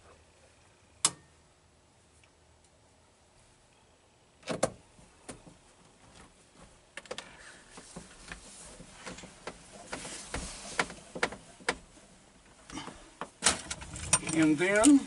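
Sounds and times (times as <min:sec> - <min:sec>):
rustling handling noise: 0:04.8 - 0:15.0.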